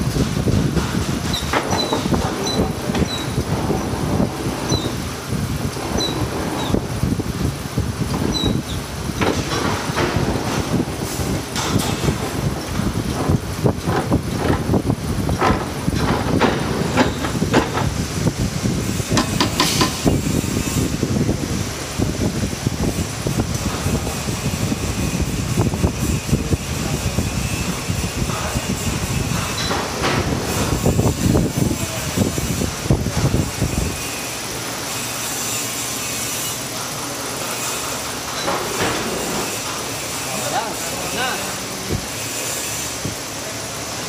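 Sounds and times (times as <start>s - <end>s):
machine motor rumble: 0.0s - 44.0s
metal knocks and clanks: 0.1s - 5.0s, 8.1s - 18.0s, 19.1s - 20.3s
heavy machine clunks: 0.1s - 7.0s, 8.0s - 18.0s, 38.3s - 39.8s.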